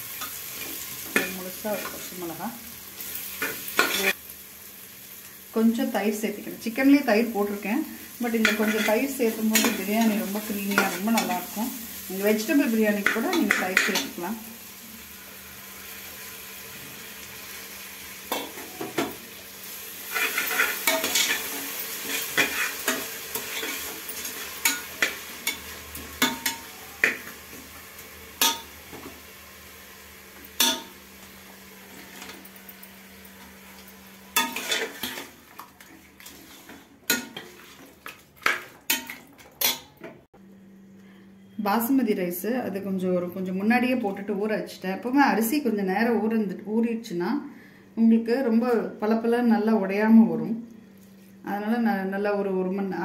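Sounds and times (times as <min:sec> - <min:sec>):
frying sizzle: 0:00.0 - 0:39.9
spoon scraping a pot: 0:08.4 - 0:11.4, 0:20.1 - 0:27.3, 0:34.4 - 0:40.0.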